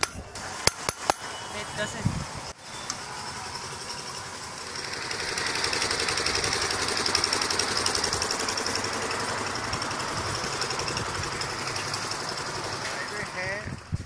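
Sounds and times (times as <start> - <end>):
machine rattling: 3.3 - 13.4.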